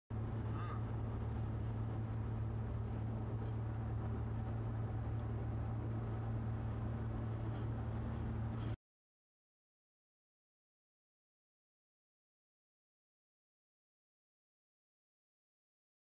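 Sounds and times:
car engine and road noise: 0.1s - 8.8s.

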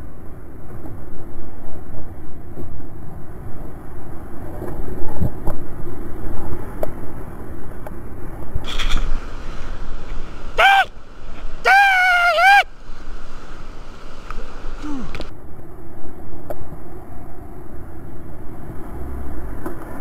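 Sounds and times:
whitewater rushing: 8.6s - 15.3s
short high-pitched cry: 10.6s - 10.9s, 11.6s - 12.7s.

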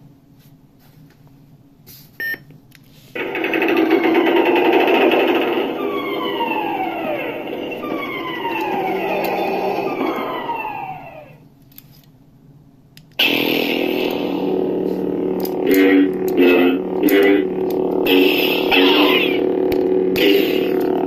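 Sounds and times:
lightsaber buzzing hum: 3.2s - 11.4s, 13.2s - 21.0s.

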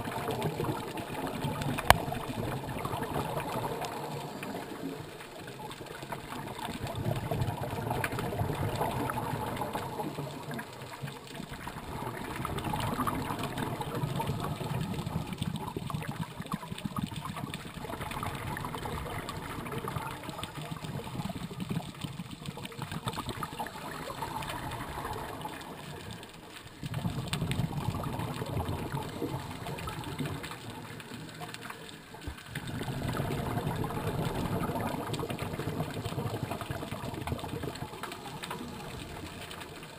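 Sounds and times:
diver's exhaled bubbles: 16.9s - 31.1s, 32.2s - 39.8s.

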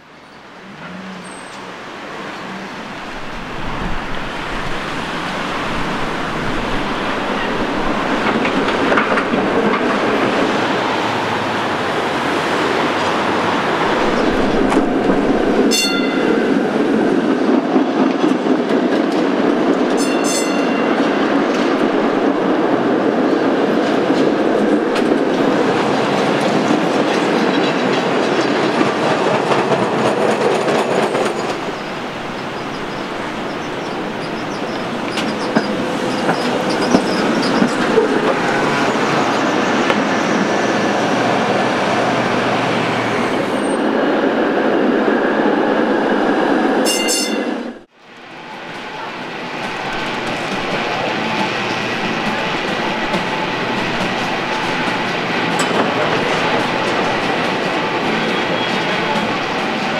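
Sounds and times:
streetcar wheel rumble and clatter: 0.0s - 59.9s
high ringing bell: 15.7s - 16.6s, 20.0s - 21.2s, 46.9s - 47.6s.

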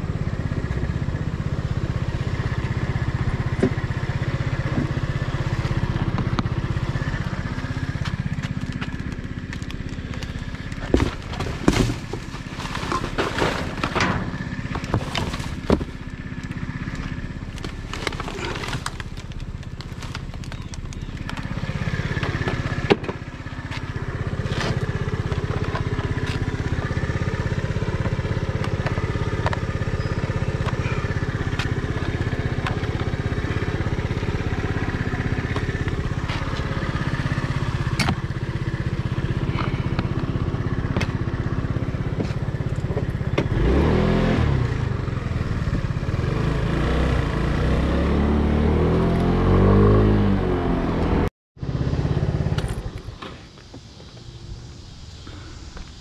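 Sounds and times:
vehicle running hum: 0.0s - 56.0s
knocks and clatter of handling: 8.2s - 21.5s.

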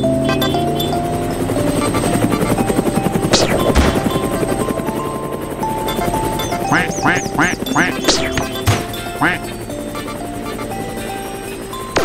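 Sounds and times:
cartoon helicopter rotor chop: 0.0s - 12.0s
cheerful children's music: 0.0s - 12.0s
cartoon duck quacks: 6.7s - 8.6s, 9.2s - 9.5s.

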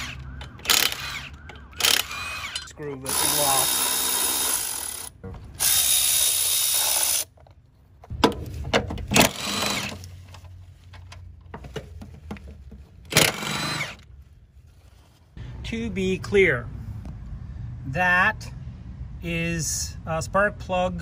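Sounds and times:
cordless ratchet whining: 0.0s - 7.3s, 13.1s - 14.1s
impact wrench bursts: 0.0s - 7.3s, 9.1s - 10.0s, 13.1s - 14.0s.

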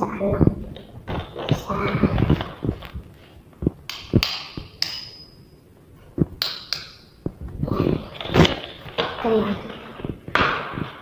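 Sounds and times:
sharp taps and clicks: 3.6s - 5.2s, 6.2s - 7.6s
high ringing ping: 4.8s - 5.6s.

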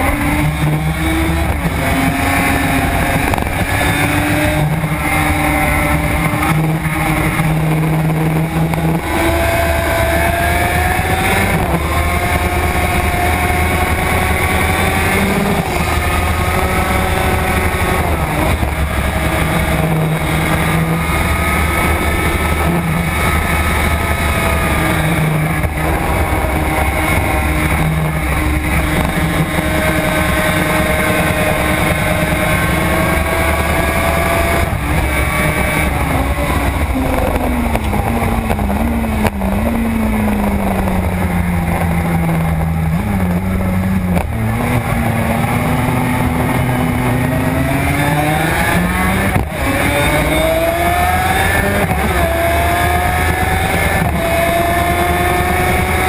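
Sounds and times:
motorcycle engine revving through gears: 0.0s - 56.0s
wind rushing: 8.9s - 42.8s.

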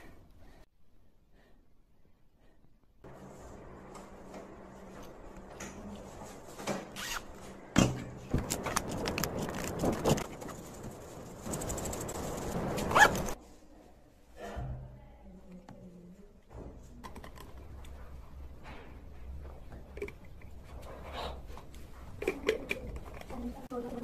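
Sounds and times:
zipper being pulled: 7.0s - 7.4s, 12.6s - 13.4s.

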